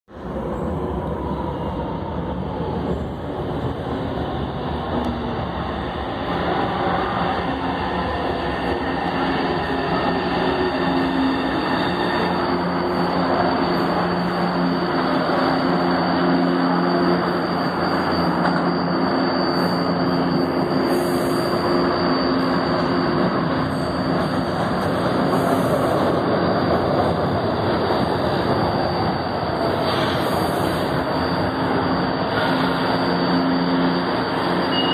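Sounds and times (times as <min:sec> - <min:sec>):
train rumble: 0:00.1 - 0:34.9.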